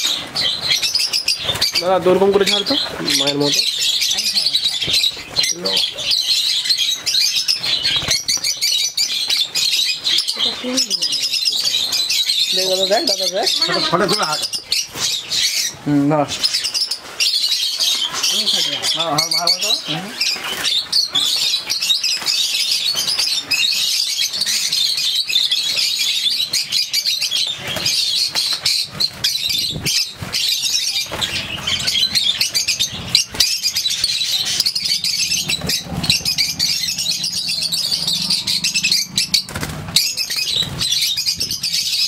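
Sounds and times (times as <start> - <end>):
lovebirds chattering and shrieking: 0.0 - 42.0
wings fluttering: 0.0 - 42.0.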